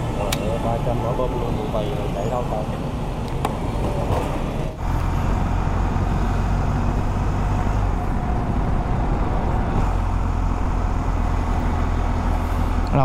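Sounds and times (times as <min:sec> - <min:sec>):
surrounding traffic: 0:00.0 - 0:13.0
wind on microphone: 0:04.8 - 0:12.8.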